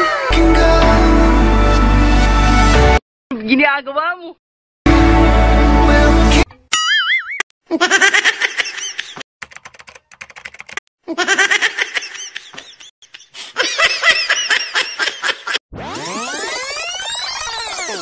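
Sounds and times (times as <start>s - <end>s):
high-pitched laughter: 7.7s - 9.2s, 11.1s - 15.6s
rising electronic sound effect: 15.7s - 18.0s.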